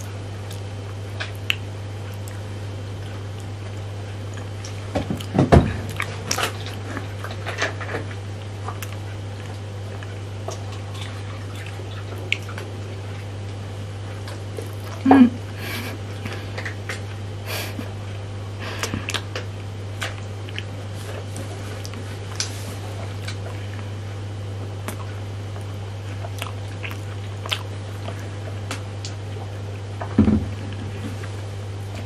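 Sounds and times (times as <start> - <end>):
steady low hum: 0.0 - 32.0
biting licking and chewing: 24.8 - 29.5.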